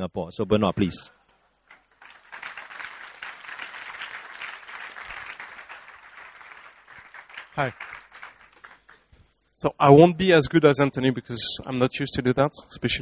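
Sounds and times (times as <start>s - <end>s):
audience applauding: 1.7s - 9.1s.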